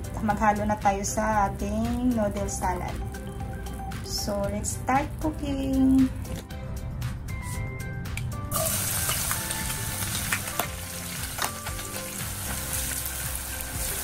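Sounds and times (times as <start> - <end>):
onions sizzling in oil: 8.5 - 14.0.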